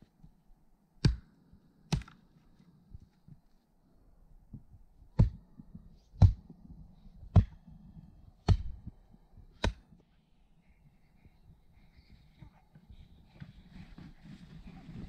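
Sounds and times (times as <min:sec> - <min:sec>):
axe chopping branches: 0:01.9 - 0:02.2, 0:09.6 - 0:09.9.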